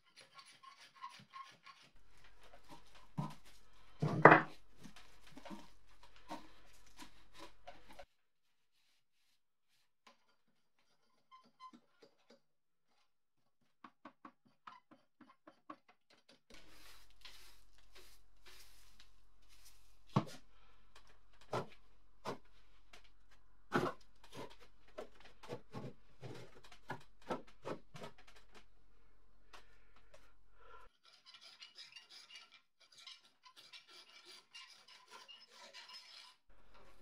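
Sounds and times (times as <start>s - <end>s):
brushing and scraping metal: 0.0s - 8.1s, 16.5s - 28.7s, 30.8s - 37.0s.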